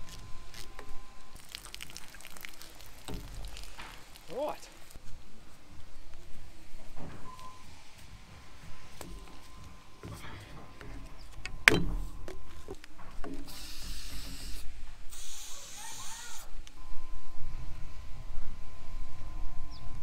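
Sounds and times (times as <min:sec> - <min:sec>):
hose fittings clicking and knocking: 0:10.0 - 0:14.5
aerosol spray can hissing: 0:13.5 - 0:16.4.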